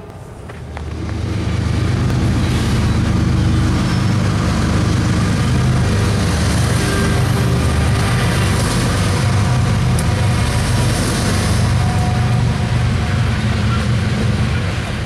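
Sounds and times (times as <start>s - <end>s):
diesel locomotive rumbling past: 0.0s - 15.0s.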